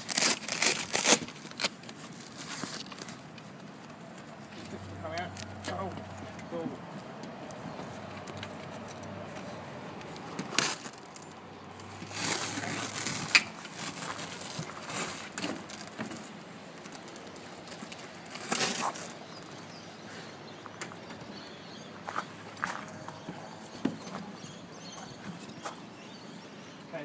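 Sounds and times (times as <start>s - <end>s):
rustling: 0.0s - 6.2s, 10.2s - 19.5s.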